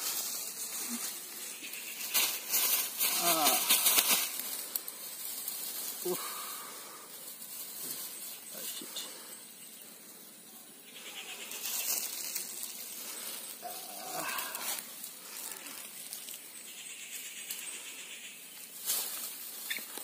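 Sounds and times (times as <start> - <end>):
undergrowth rustling and snapping: 2.0 - 6.1, 11.6 - 16.5, 18.6 - 20.0.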